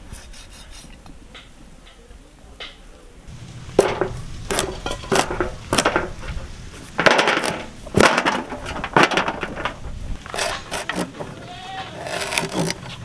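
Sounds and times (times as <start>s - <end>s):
blade chopping on wooden block: 3.7s - 6.2s.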